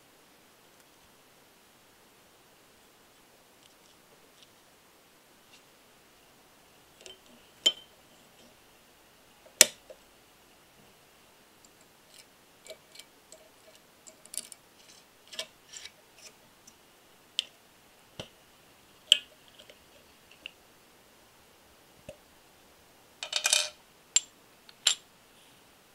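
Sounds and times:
metal tweezers tapping: 0:07.0 - 0:07.9
small metal parts clinking: 0:11.8 - 0:15.9, 0:23.2 - 0:25.0.

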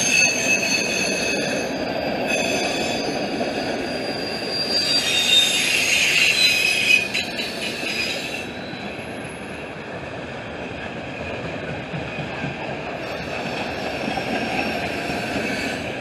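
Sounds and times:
high-pitched wheel squeal: 0:00.0 - 0:09.5
train wheels rumbling on rail: 0:00.0 - 0:16.0.

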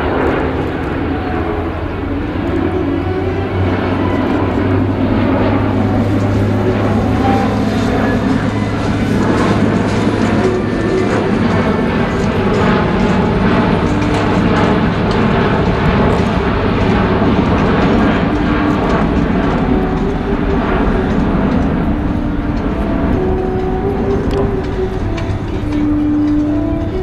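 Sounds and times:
loud jet roar: 0:00.0 - 0:27.0
orchestral music over loudspeakers: 0:00.0 - 0:27.0.

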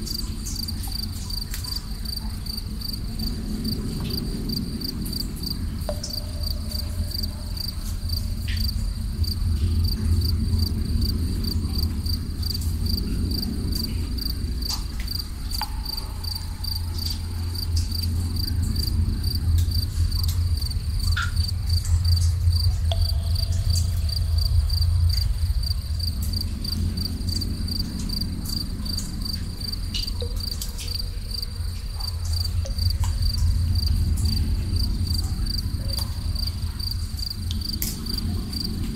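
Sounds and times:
crickets chirping: 0:00.0 - 0:38.9
deep low rumble: 0:00.0 - 0:38.9
faint water drips: 0:00.0 - 0:38.9.

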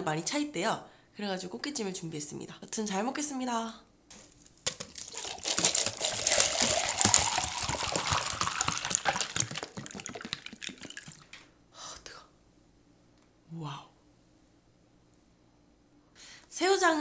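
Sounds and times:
drink pouring into plastic mug: 0:04.7 - 0:11.4.

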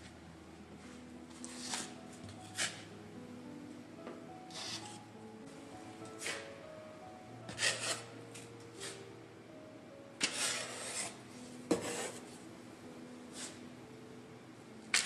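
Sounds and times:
wooden spatula scraping counter: 0:01.3 - 0:02.8, 0:07.5 - 0:08.1, 0:10.2 - 0:12.4.

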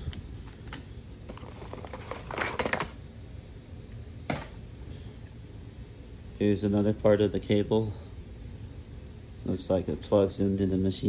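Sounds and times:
packaging rustling: 0:00.4 - 0:03.0.

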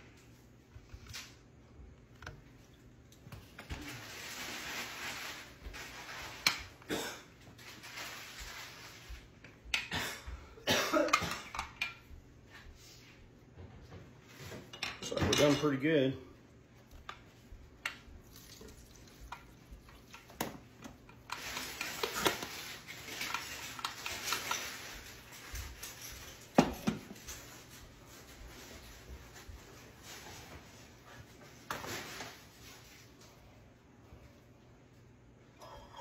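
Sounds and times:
butter squishing and pouring: 0:18.1 - 0:20.4.

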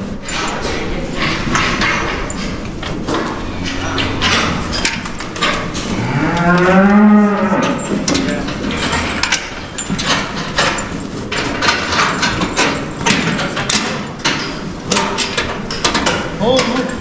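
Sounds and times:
knocks and clanks: 0:00.0 - 0:17.0
cow mooing: 0:03.4 - 0:04.8, 0:05.8 - 0:07.9.

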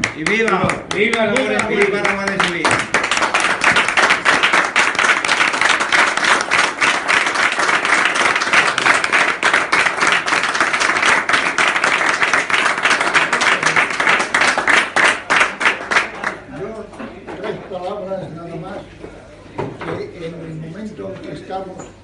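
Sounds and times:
crowd applauding: 0:00.0 - 0:16.5.

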